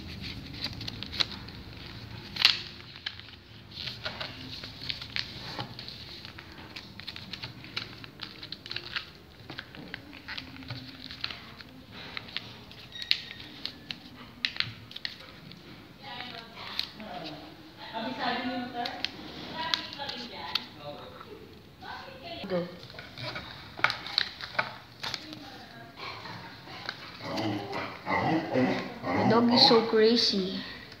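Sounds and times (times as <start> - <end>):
paper rustling and crinkling: 0.0 - 21.1, 22.8 - 25.9.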